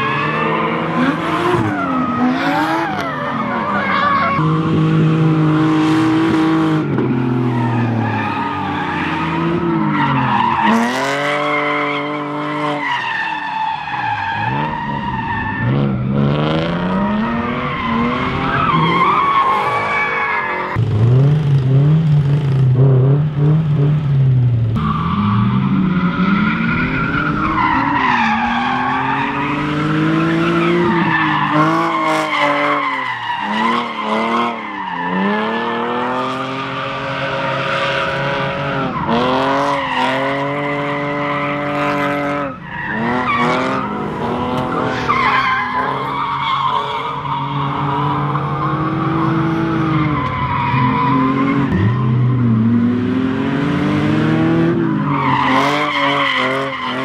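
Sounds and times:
tyre squeal: 0:44.6 - 0:52.4
car engine revving hard: 0:48.4 - 0:57.0.

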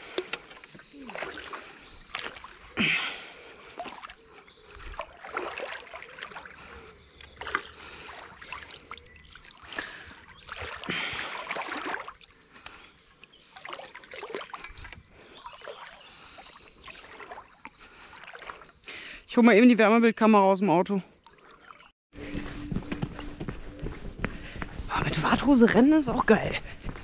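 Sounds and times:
water sloshing from wading: 0:00.0 - 0:18.9, 0:21.1 - 0:21.9.

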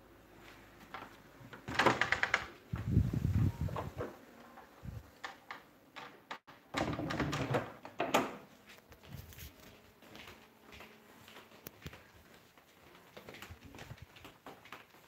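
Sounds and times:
wooden door being opened: 0:01.0 - 0:02.6, 0:03.6 - 0:04.2, 0:05.0 - 0:08.5.

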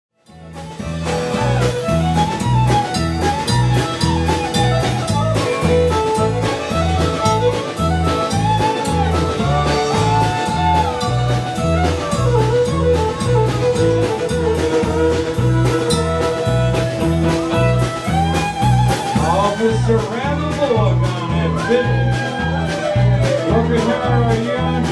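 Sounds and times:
drums: 0:00.1 - 0:24.9
acoustic guitar: 0:00.2 - 0:24.9
bowed fiddle long notes: 0:00.3 - 0:24.8
banjo: 0:00.3 - 0:24.9
bass alternating two notes: 0:00.3 - 0:24.9.

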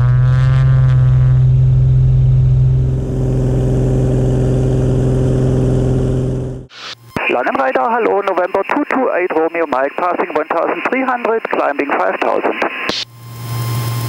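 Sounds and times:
aircraft engine and propeller drone: 0:01.5 - 0:06.7.

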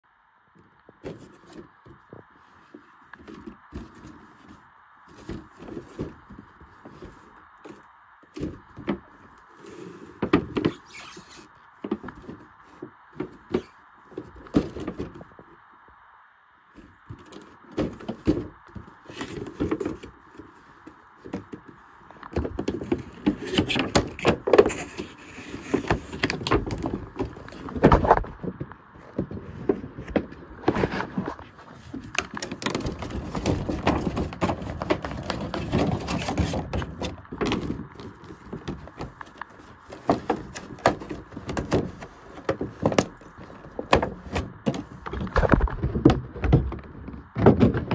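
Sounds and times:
cardboard box being handled: 0:01.0 - 0:15.3, 0:30.2 - 0:46.8.

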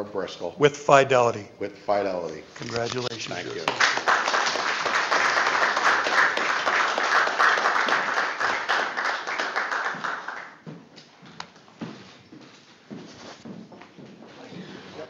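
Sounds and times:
audience applauding: 0:03.4 - 0:10.6.

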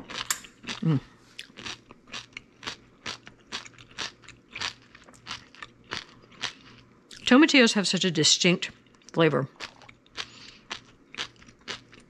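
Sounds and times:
person chewing crunchily: 0:00.0 - 0:07.2, 0:08.8 - 0:12.0.

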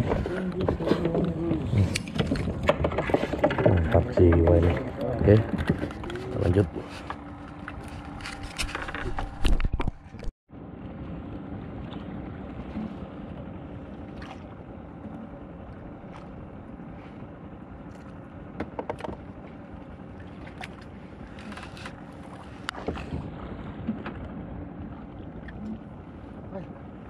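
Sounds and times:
clicks and knocks from rod: 0:00.0 - 0:06.2, 0:18.0 - 0:19.3
water around boat: 0:00.0 - 0:27.0
wind: 0:00.0 - 0:27.0.

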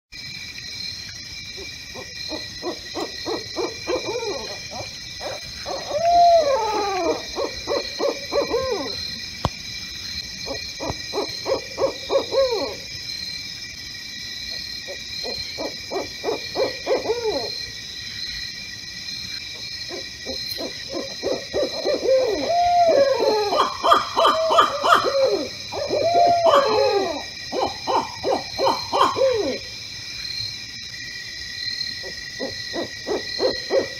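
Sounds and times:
owls hooting: 0:02.0 - 0:09.0, 0:10.4 - 0:12.9, 0:15.2 - 0:17.6, 0:19.9 - 0:29.7, 0:32.0 - 0:33.9.

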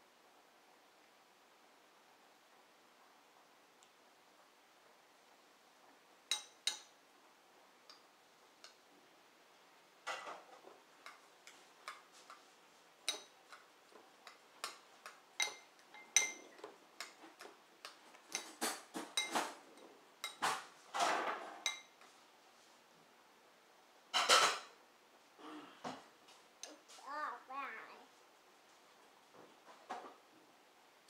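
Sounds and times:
metal spoon clinking in a bowl: 0:06.3 - 0:06.9, 0:13.0 - 0:13.6, 0:14.2 - 0:17.2, 0:19.1 - 0:20.5, 0:21.6 - 0:22.0.

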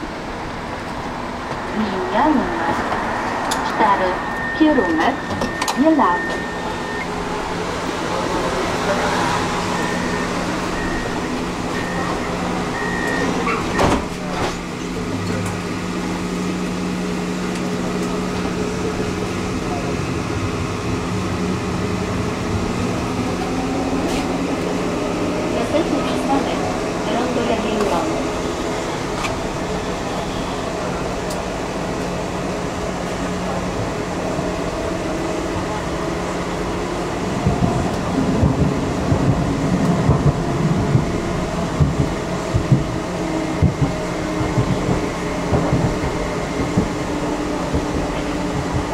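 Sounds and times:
tram doors shutting with knock: 0:00.0 - 0:16.8, 0:33.0 - 0:48.9
tram drive and ventilation hum: 0:00.0 - 0:48.9
door warning beeps: 0:04.1 - 0:07.3, 0:09.7 - 0:14.0.

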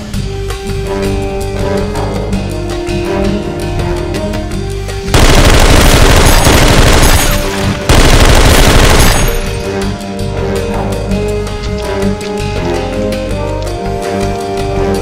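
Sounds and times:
background music: 0:00.0 - 0:15.0
automatic gunfire bursts: 0:05.1 - 0:09.7.

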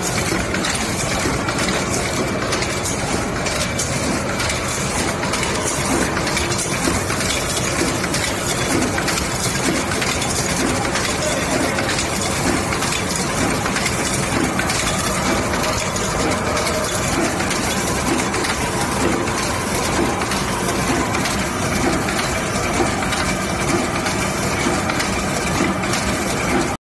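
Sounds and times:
machine rhythmic mechanical clatter: 0:00.0 - 0:26.8.

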